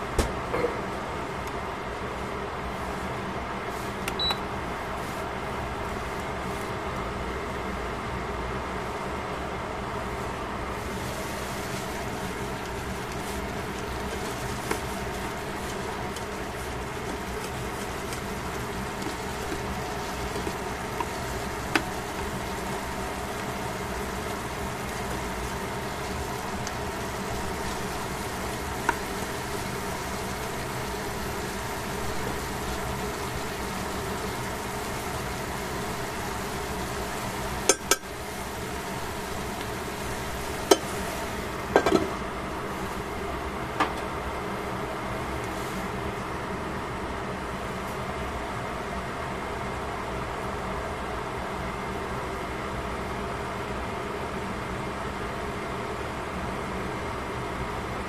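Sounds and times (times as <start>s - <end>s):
vegetables sizzling in a pan: 10.1s - 46.2s.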